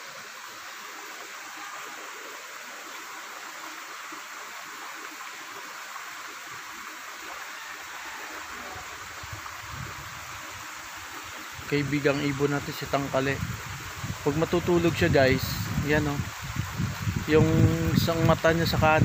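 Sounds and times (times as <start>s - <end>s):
running water rushing: 0.0s - 19.0s.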